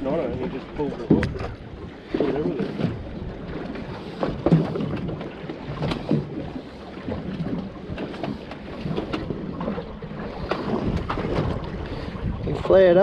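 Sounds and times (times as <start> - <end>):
water sloshing around boat: 0.0 - 13.0
wind on microphone: 0.0 - 13.0.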